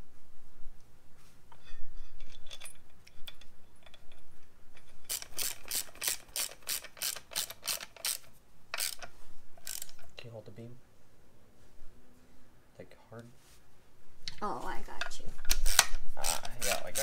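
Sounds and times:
socket ratchet clicking: 0:05.1 - 0:10.1, 0:15.5 - 0:17.0.

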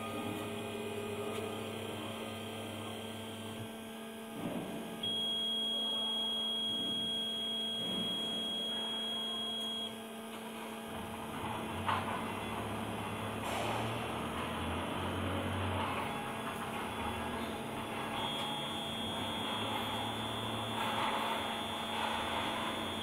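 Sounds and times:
steady electrical hum: 0:00.0 - 0:23.0
high steady whine: 0:15.8 - 0:23.0.

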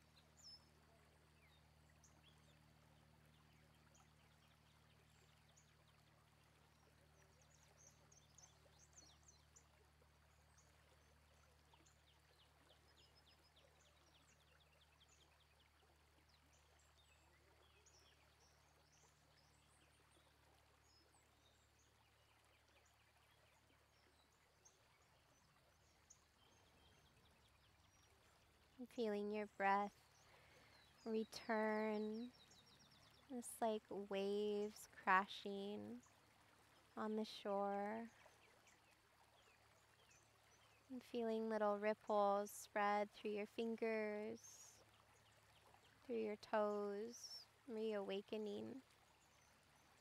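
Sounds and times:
small birds chirping: 0:00.0 - 0:50.0.

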